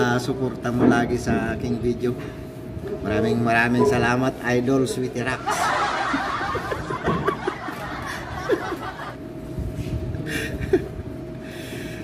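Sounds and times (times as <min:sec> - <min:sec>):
man chuckling and laughing: 0:05.5 - 0:09.2, 0:10.2 - 0:11.1.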